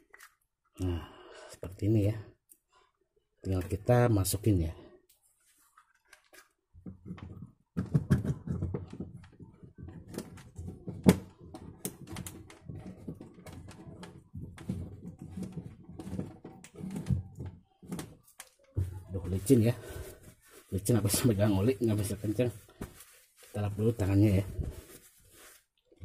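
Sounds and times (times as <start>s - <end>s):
plastic clicks and knocks: 6.0s - 18.9s.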